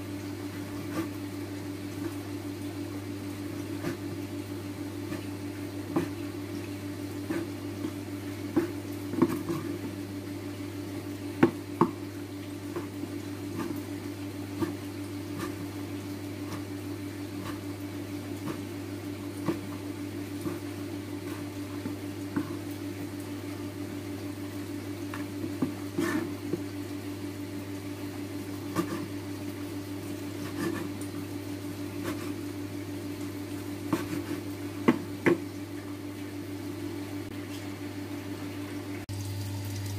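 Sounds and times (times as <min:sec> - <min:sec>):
low appliance hum: 0:00.0 - 0:39.9
knife chopping on wooden board: 0:08.5 - 0:09.9, 0:11.4 - 0:12.0, 0:19.4 - 0:19.8, 0:28.7 - 0:29.1, 0:33.9 - 0:35.4.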